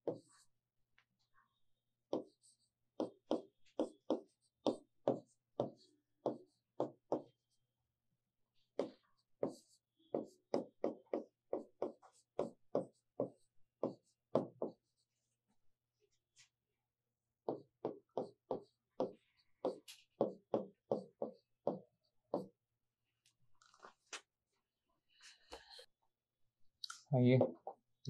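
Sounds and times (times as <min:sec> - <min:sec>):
chalk tapping on blackboard: 0:00.0 - 0:00.4, 0:02.1 - 0:07.4, 0:08.8 - 0:15.0, 0:17.4 - 0:22.5.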